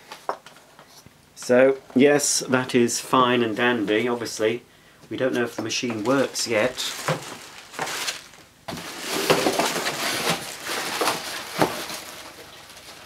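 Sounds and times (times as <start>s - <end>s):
plastic packing rustling and crackling: 5.2s - 13.0s.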